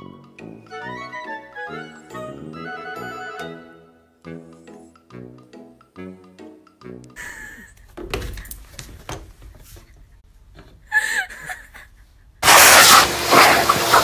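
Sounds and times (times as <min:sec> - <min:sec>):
leaf blower rushing air: 0:12.4 - 0:14.0.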